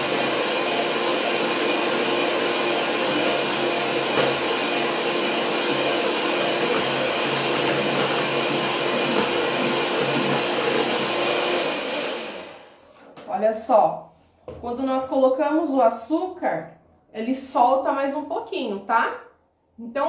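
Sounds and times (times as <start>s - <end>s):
electric hand mixer whipping cream: 0.0s - 12.8s.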